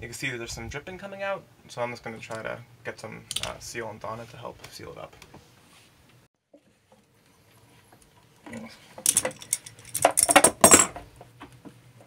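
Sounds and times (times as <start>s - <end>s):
metal wrench and fittings clinking: 9.0s - 11.0s.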